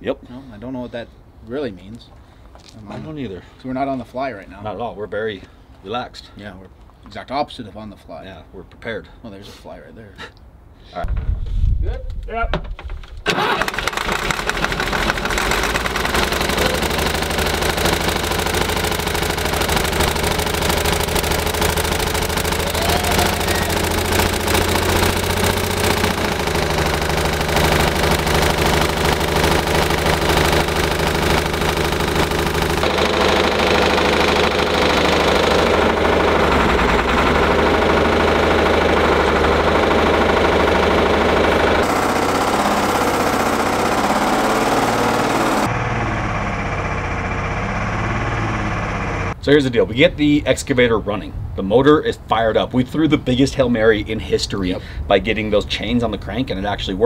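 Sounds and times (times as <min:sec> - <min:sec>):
excavator diesel engine running: 0:13.3 - 0:49.4.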